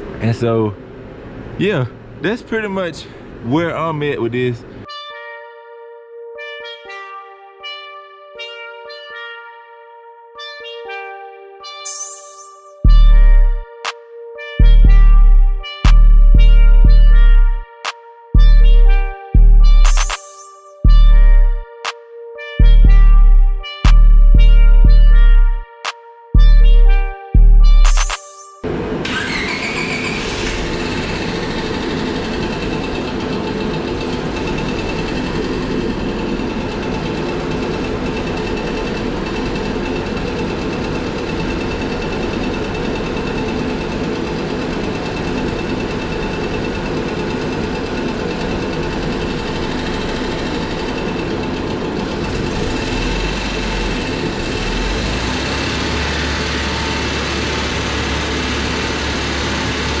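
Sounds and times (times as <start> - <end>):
car engine idling: 28.7 - 60.0.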